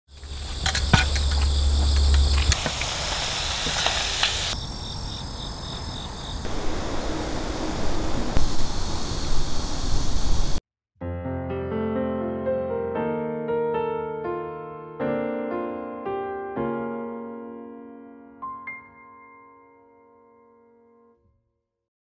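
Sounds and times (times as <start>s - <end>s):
insects chirping: 0.1s - 10.6s
low rumble: 6.5s - 10.6s.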